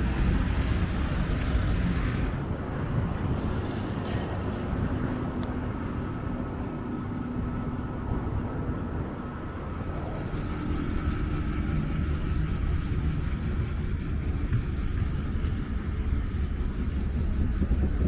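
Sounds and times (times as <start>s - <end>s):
motor traffic rumble: 0.0s - 18.0s
faint steady whine: 5.2s - 18.0s.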